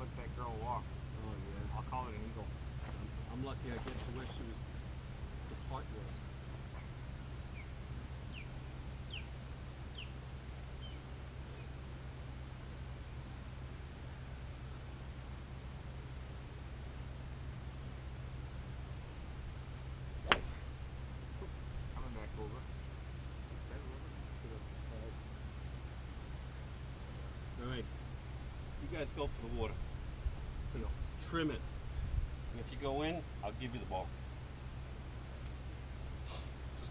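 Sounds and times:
high-pitched insect chorus: 0.0 - 36.9
golf club striking ball: 20.2 - 20.9.

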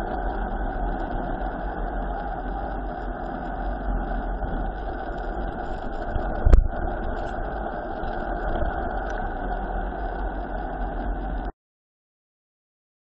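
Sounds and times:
wind buffeting microphone: 0.0 - 11.4.

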